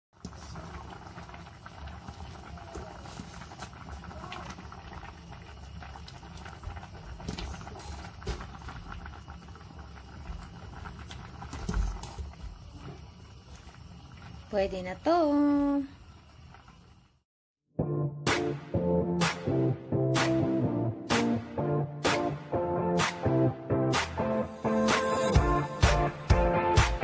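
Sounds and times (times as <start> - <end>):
water boiling in a pot: 0.1 - 17.2.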